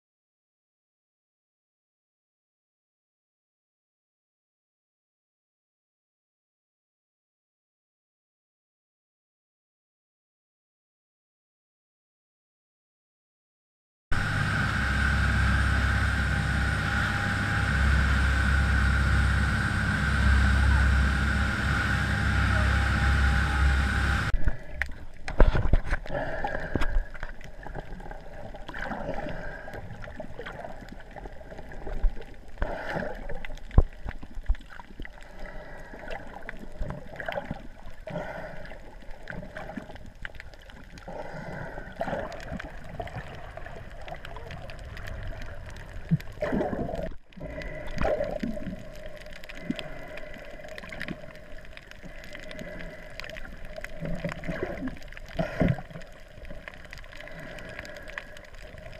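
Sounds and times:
muffled underwater gurgling: 14.2s - 58.9s.

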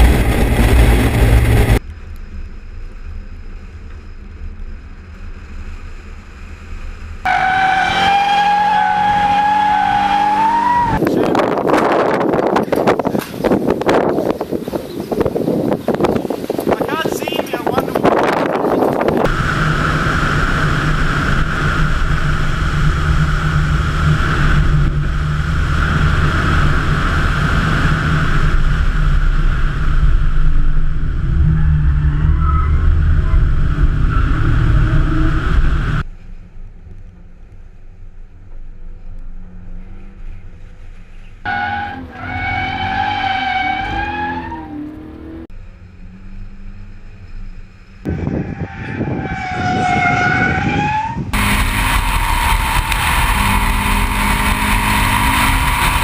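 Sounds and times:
car engine running hard: 0.0s - 8.2s, 16.2s - 37.8s, 44.7s - 56.0s
engine revving: 19.2s - 36.1s, 41.4s - 56.0s.

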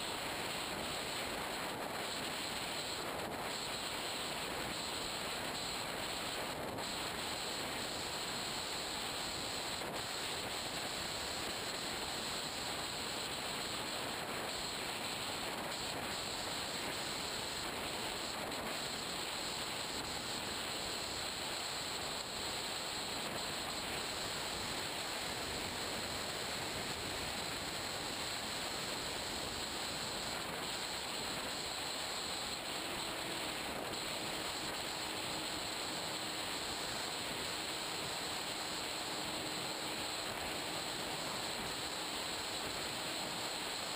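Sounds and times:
airflow and propeller noise: 0.0s - 43.9s.

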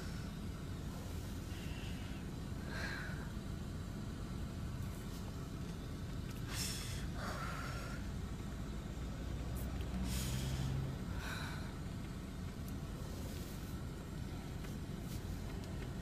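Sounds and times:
steady low rumble: 0.0s - 16.0s
person breathing hard: 1.4s - 3.4s, 6.5s - 8.2s, 10.0s - 12.0s
noisy sniffs or gasps: 10.0s - 11.4s.

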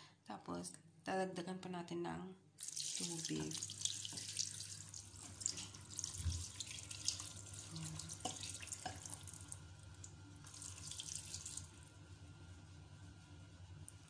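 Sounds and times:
water pouring into a pot: 2.6s - 11.9s.

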